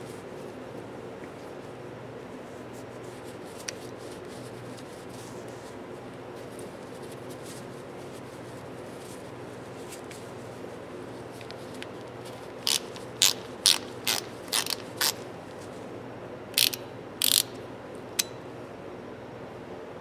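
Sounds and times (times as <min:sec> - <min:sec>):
faint steady hum: 0:00.0 - 0:20.0
ratchet pawl clicking: 0:12.6 - 0:15.2, 0:16.6 - 0:17.6.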